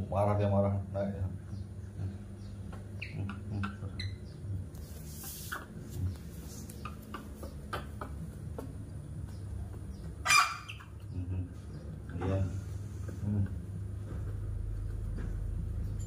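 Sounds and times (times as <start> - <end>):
steady low hum: 0.0 - 16.0
monkey squealing: 10.2 - 10.9.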